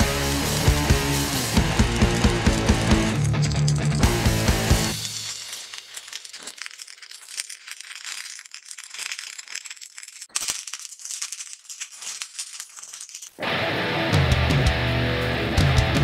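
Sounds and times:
welding arc crackling: 0:00.0 - 0:10.5.

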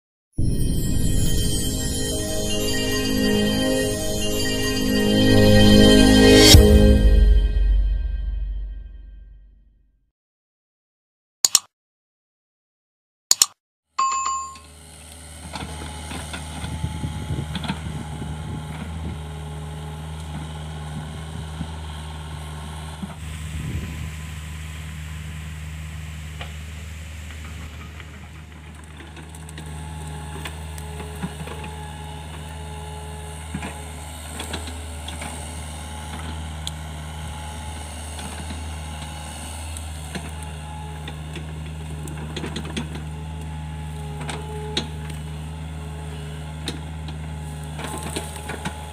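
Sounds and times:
excavator diesel engine running: 0:14.8 - 0:48.9.

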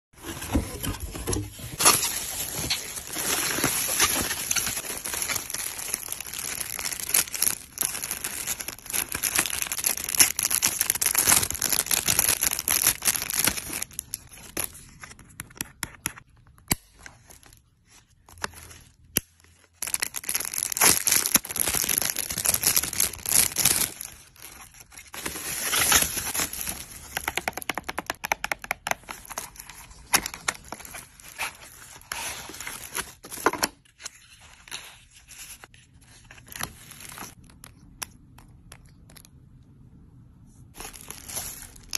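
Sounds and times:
plastic packaging crinkling: 0:01.2 - 0:14.8, 0:19.6 - 0:28.2, 0:40.8 - 0:41.9.

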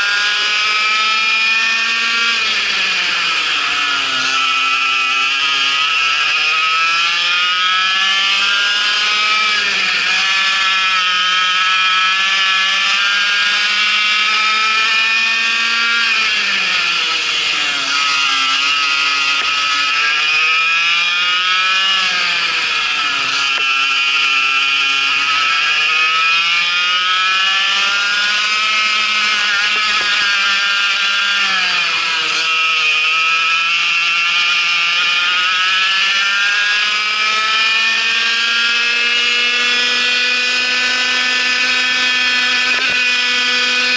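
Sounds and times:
kart engine at racing revs: 0:00.0 - 0:43.9.

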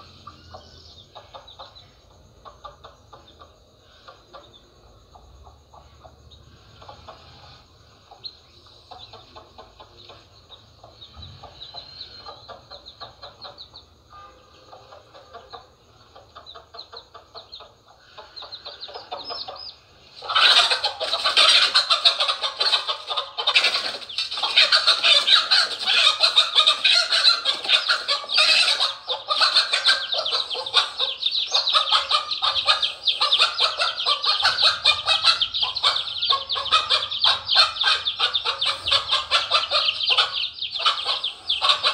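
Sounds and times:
chicks peeping: 0:00.0 - 0:41.9
hen squawking and clucking: 0:18.1 - 0:41.9.

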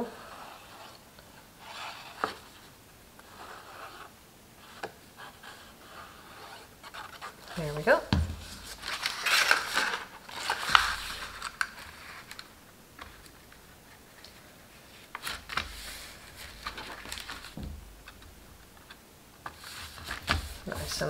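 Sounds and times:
cardstock sliding and rustling: 0:08.4 - 0:12.4, 0:19.4 - 0:21.0.

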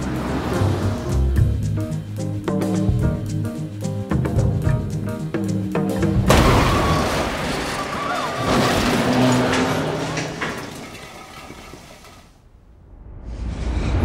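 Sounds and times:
jazz music: 0:00.0 - 0:06.6
loud crash: 0:06.3 - 0:14.0.

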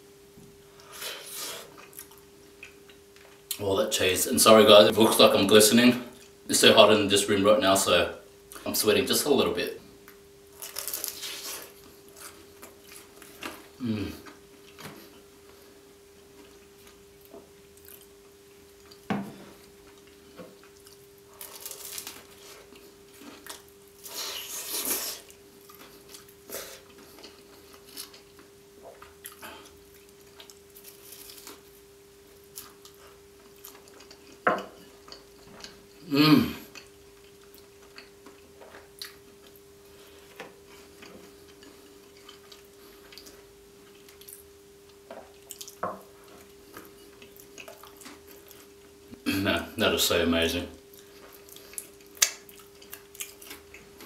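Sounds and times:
person chewing and biting: 0:10.5 - 0:15.1, 0:17.8 - 0:18.2, 0:19.8 - 0:31.7, 0:40.2 - 0:48.8, 0:50.9 - 0:54.0.

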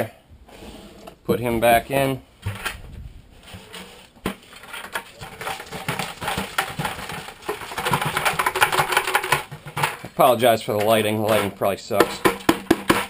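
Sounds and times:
bits rattling in metal sifter: 0:03.4 - 0:13.0.

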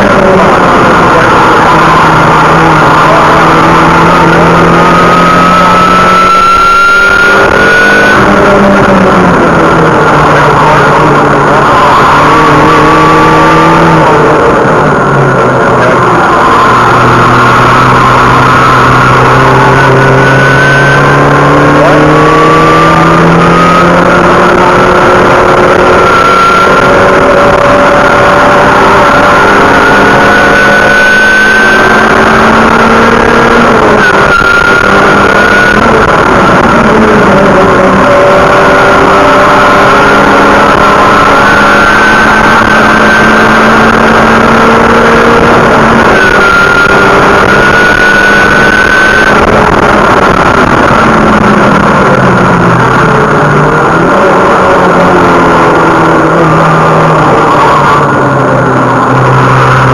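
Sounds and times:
car engine revving from inside cabin: 0:00.0 - 0:59.9
wind and road noise: 0:00.0 - 0:59.9.

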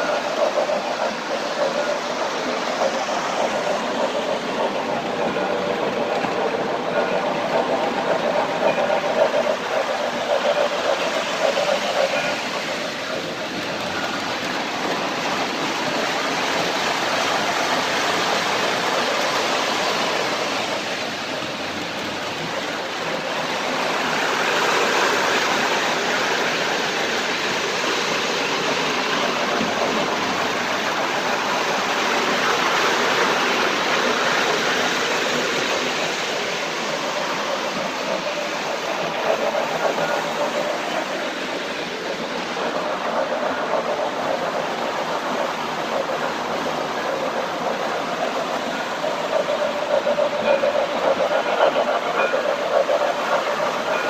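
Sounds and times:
model trains rumbling on track: 0:00.0 - 0:54.0.

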